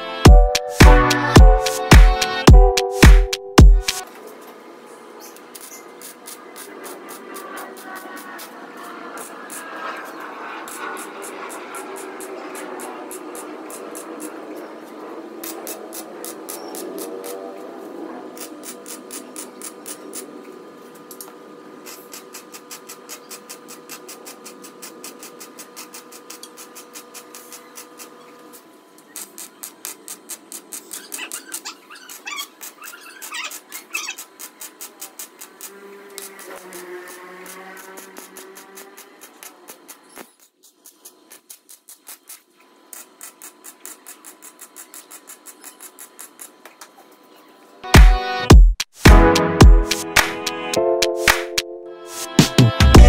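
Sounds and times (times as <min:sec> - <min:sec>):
crackling welding arc: 0:05.2 - 0:31.7, 0:33.5 - 0:47.4
wire brush scrubbing metal: 0:05.4 - 0:46.7.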